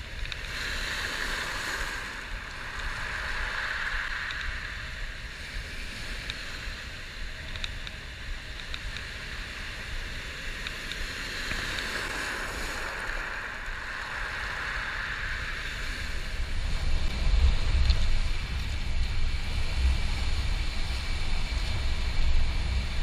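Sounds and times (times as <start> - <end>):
faint ticks: 0.0 - 1.2, 2.2 - 4.8, 6.2 - 6.6, 7.4 - 9.2, 10.4 - 14.8
low wind rumble on microphone: 0.0 - 23.0.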